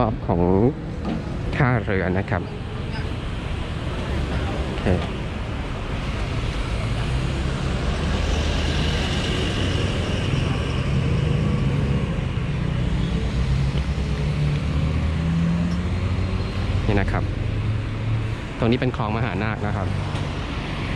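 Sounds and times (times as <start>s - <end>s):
vehicles driving past: 0.0s - 20.9s.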